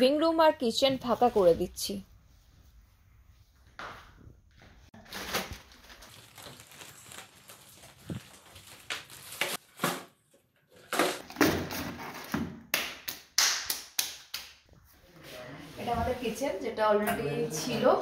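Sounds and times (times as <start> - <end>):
plastic sack crinkling: 5.0 - 9.9.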